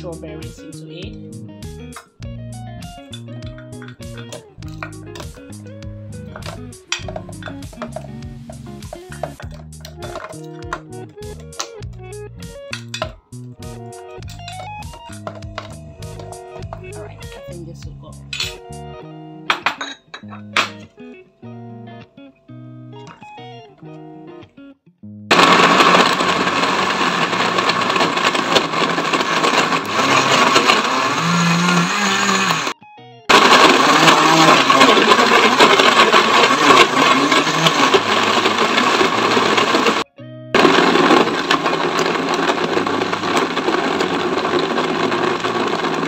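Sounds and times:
blender grinding: 6.3s - 11.8s, 14.3s - 17.3s, 25.3s - 40.0s, 40.6s - 46.0s.

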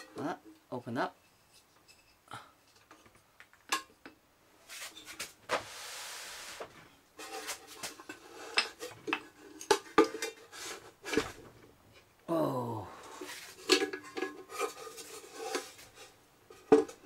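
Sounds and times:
scraping slide: 4.7s - 8.6s.

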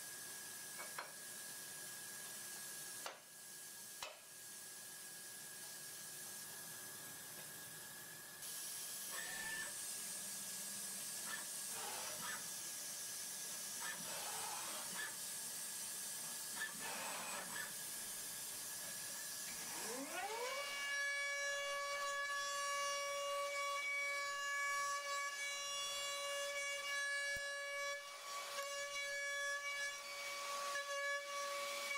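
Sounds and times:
milling machine hiss: 8.3s - 20.1s
machine axes whirring: 11.2s - 12.5s, 13.7s - 15.2s, 16.5s - 17.9s.

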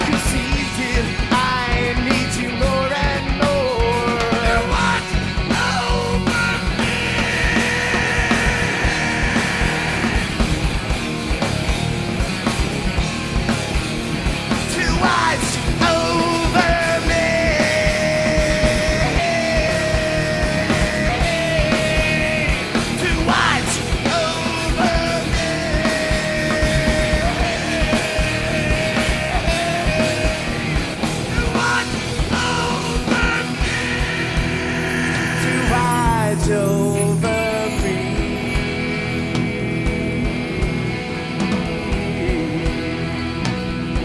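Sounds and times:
rock band playing live: 0.0s - 44.0s
long held melody line: 24.1s - 43.4s.

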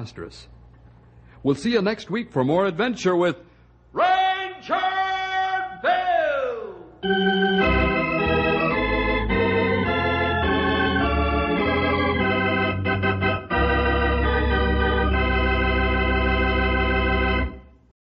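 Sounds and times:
organ playing chords: 7.0s - 17.9s.

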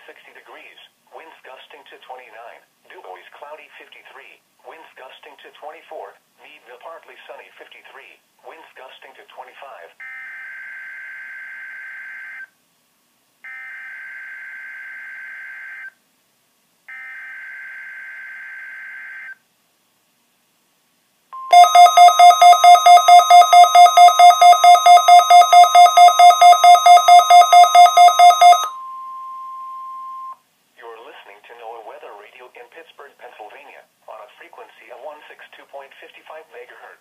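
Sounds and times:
radio alert beeping: 21.4s - 30.4s
steady warning tone: 21.4s - 30.4s.

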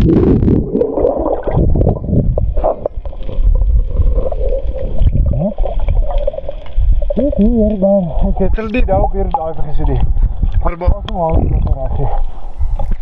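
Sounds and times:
bubbles bubbling underwater: 0.0s - 13.0s
muffled underwater rumble: 0.0s - 13.0s.

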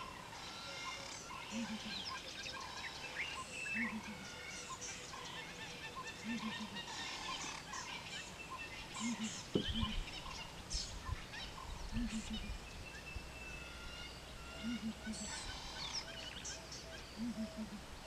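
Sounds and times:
wild birds calling: 0.0s - 18.0s
dull thump: 9.5s - 9.9s.

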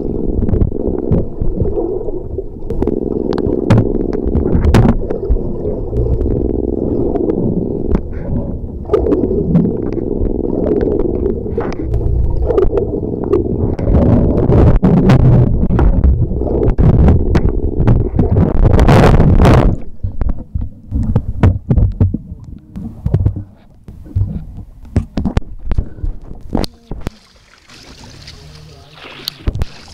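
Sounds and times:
low hum: 0.0s - 29.9s
water sloshing underwater: 0.0s - 29.9s
sharp clicks and knocks: 2.6s - 22.2s, 22.8s - 26.8s.

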